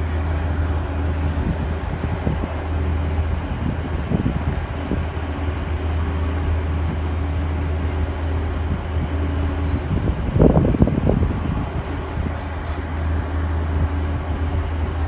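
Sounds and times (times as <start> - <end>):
boat engine droning: 0.0 - 15.0.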